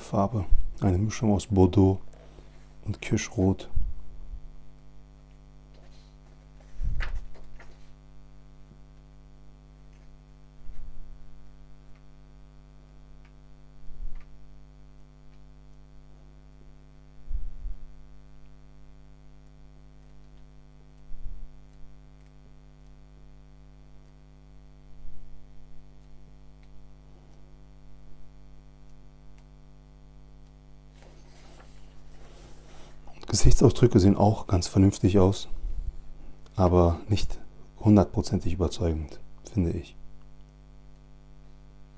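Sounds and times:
electrical mains hum: 0.0 - 41.9
book pages turning: 5.7 - 8.0, 30.9 - 33.0.

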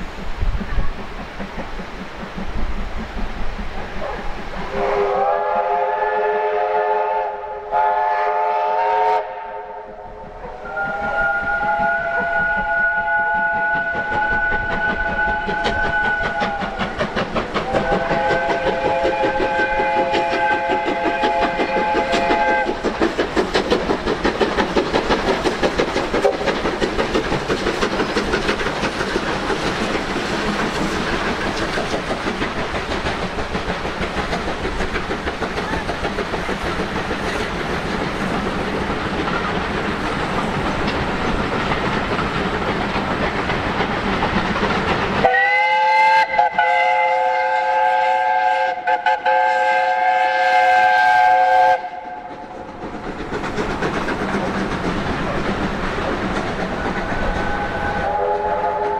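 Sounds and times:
train wheels clattering on rail joints: 0.0 - 5.0, 10.2 - 58.9
steam locomotive exhaust beats: 0.0 - 58.9
steam locomotive chime whistle: 4.7 - 17.0, 17.6 - 22.8, 45.2 - 52.3, 57.3 - 58.9.

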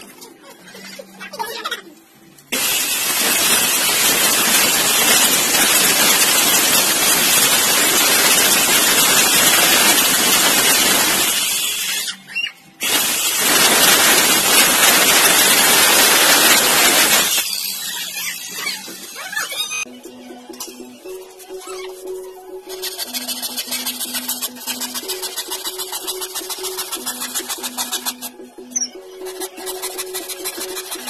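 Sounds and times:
saw winding down: 2.5 - 12.1, 12.8 - 19.8, 22.7 - 28.3
circular saw cutting plywood: 2.6 - 12.2, 12.8 - 19.2, 22.7 - 28.4, 29.2 - 31.0.

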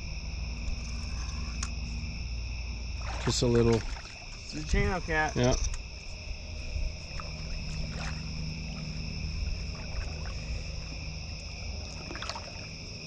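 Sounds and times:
low rumble of river water: 0.0 - 13.0
night insects chirring: 0.0 - 13.0
small splashes: 2.8 - 5.1, 7.0 - 13.0.

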